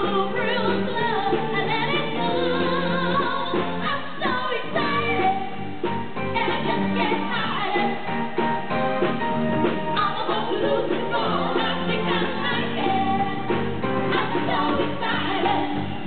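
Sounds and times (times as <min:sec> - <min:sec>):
people singing: 0:00.0 - 0:05.4, 0:09.9 - 0:16.0
drums: 0:00.0 - 0:16.0
keyboard: 0:00.0 - 0:16.0.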